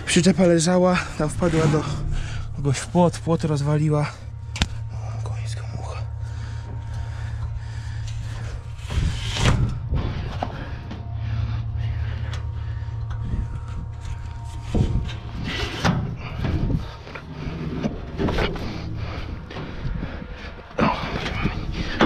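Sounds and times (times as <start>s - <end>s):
engine idling: 0.0s - 22.0s.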